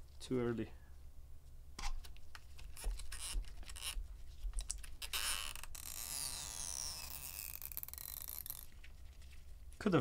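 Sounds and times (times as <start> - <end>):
adhesive tab hissing and squeaking: 2.8 - 4.0, 4.9 - 8.9.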